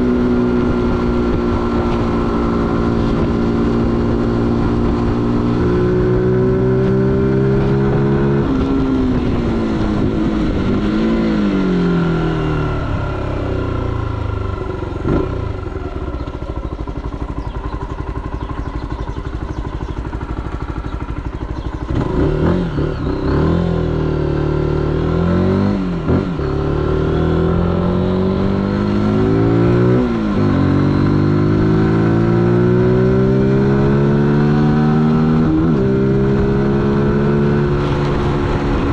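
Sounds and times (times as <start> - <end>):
motorcycle engine: 0.0 - 38.9.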